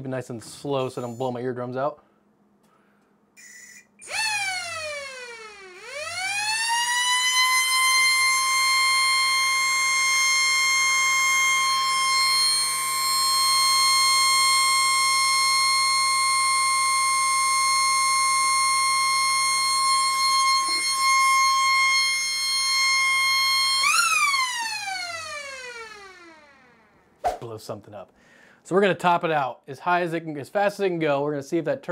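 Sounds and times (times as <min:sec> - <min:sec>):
siren wailing: 0:04.0 - 0:26.9.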